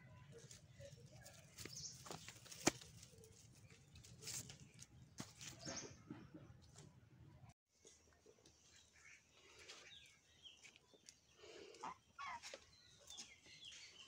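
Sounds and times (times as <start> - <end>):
rustling on dry leaves: 0.4 - 5.6.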